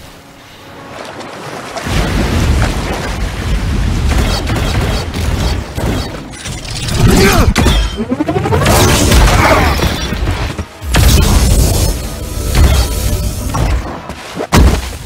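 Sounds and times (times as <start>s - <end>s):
swooping tones: 7.7s - 9.6s.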